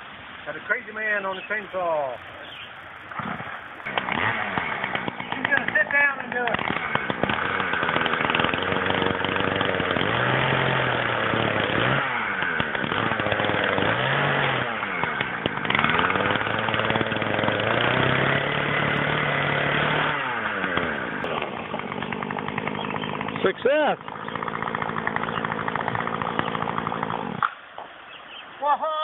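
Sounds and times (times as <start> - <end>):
chainsaw cutting log: 1.7 - 28.0.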